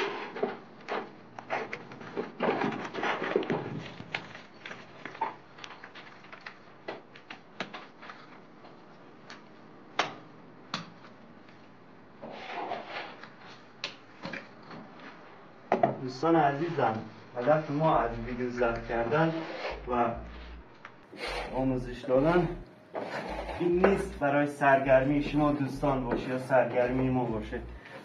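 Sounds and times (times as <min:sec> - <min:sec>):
plaster rubbing and scraping: 0:17.4 - 0:20.6, 0:21.2 - 0:24.2.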